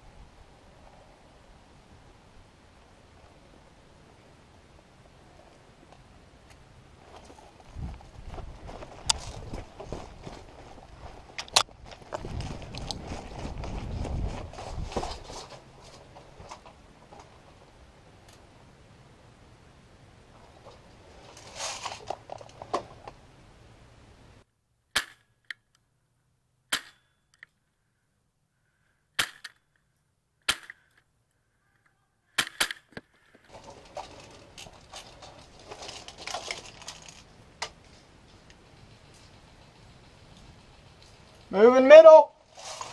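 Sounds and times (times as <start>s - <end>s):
gear rustling and knocking: 33.4s - 41.5s.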